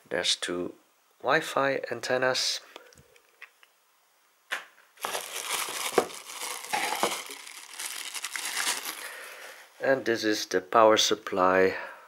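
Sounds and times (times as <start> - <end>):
plastic bag crinkling: 5.0 - 9.5.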